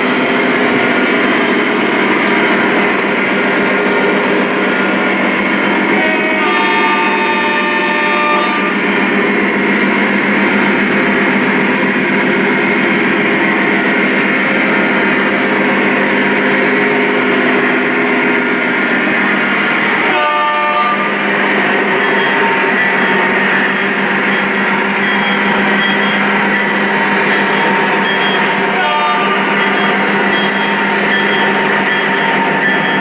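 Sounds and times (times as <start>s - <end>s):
model train horn: 5.9s - 8.8s, 20.0s - 21.2s, 28.7s - 29.5s.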